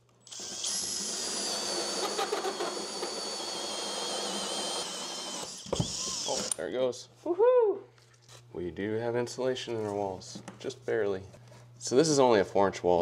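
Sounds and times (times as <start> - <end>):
power drill with hole saw: 0.3 - 6.6.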